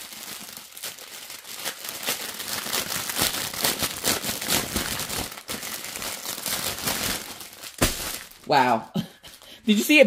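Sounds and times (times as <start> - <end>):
plastic wrapping crinkling: 0.0 - 8.6.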